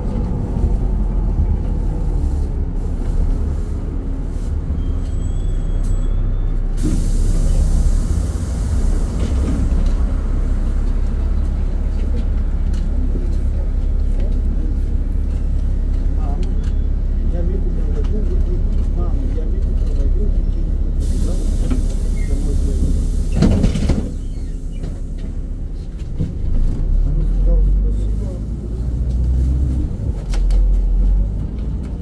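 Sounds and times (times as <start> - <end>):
bus engine rumbling: 0.0 - 32.0
air brakes hissing: 4.8 - 10.0, 21.0 - 25.1.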